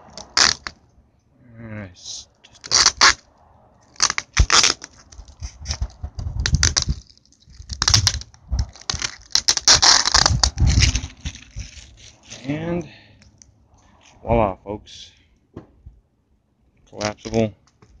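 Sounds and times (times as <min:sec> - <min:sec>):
tape crinkling: 0:00.0 - 0:00.8, 0:02.5 - 0:03.2, 0:03.8 - 0:12.5, 0:16.9 - 0:18.0
foam board rustling and scraping: 0:04.0 - 0:12.6.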